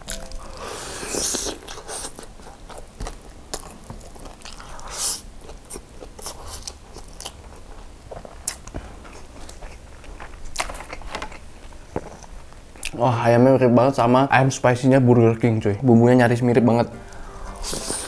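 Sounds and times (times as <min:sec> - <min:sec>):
chewing with wet clicks: 0:01.3 - 0:13.0.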